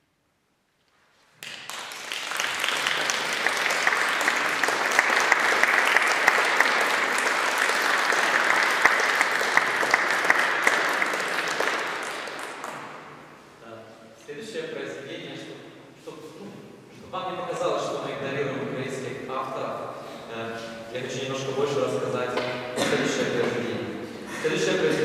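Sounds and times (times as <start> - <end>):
audience applauding: 1.4 - 13.1.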